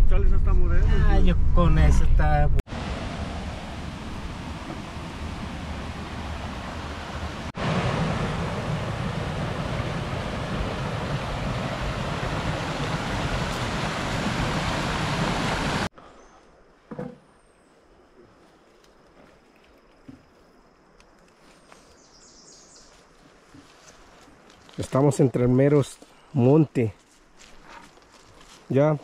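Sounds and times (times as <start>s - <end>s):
fast-flowing stream rushing: 2.7s - 15.9s.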